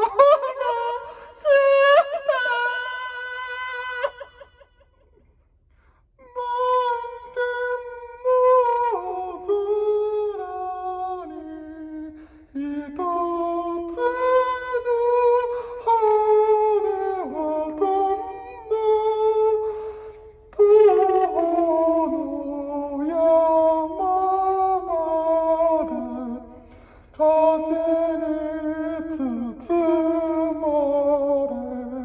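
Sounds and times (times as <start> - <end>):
man singing into microphone: 20.5 - 26.4, 27.2 - 32.0.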